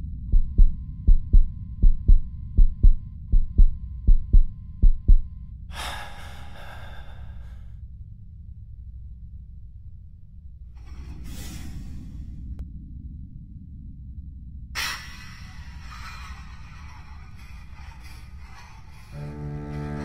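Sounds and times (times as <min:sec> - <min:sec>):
heartbeat double thumps: 0:00.0 - 0:05.5
steady low drone: 0:00.0 - 0:20.0
breathy rush of noise: 0:05.7 - 0:07.9, 0:10.8 - 0:12.6, 0:14.8 - 0:19.2.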